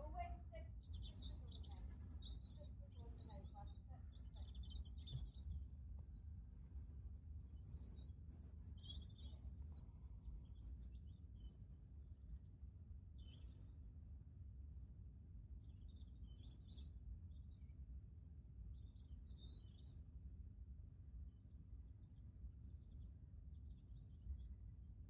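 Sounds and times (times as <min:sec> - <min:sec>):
small birds chirping: 0:00.0 - 0:17.7.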